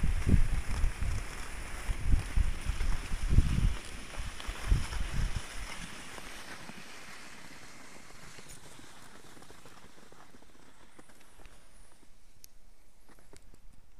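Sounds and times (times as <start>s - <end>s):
wind buffeting microphone: 0.0s - 5.8s
skis gliding over snow: 0.0s - 13.7s.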